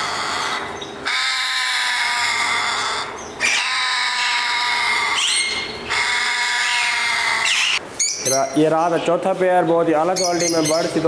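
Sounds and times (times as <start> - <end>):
parrot harsh calls: 0.0 - 8.6.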